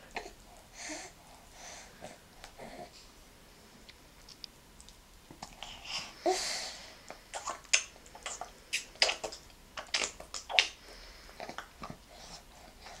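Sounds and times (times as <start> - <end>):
baby smacking fingers: 7.4 - 10.8.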